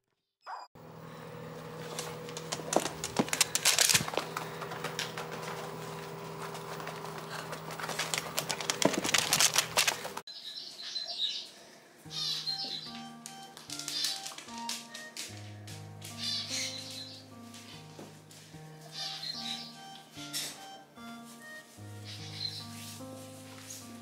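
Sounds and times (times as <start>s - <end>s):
steady mechanical hum: 0.8s - 10.3s
small birds chirping: 10.3s - 15.2s, 16.1s - 17.9s, 18.9s - 20.8s, 21.9s - 22.8s.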